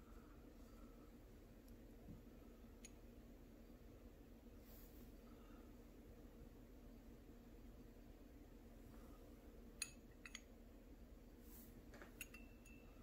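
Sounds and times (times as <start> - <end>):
metal clinking on glass beaker: 9.8 - 10.5, 12.2 - 13.0.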